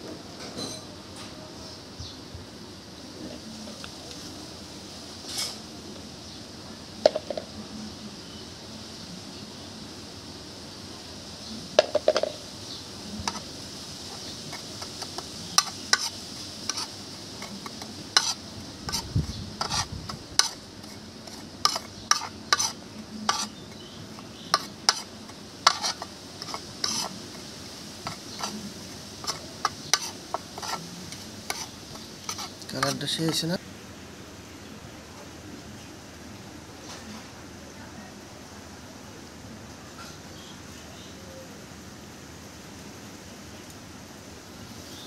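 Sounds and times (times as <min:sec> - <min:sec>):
metal spoon scraping ceramic plate: 0:14.5 - 0:23.8, 0:24.5 - 0:27.2, 0:28.0 - 0:28.6, 0:29.2 - 0:33.4.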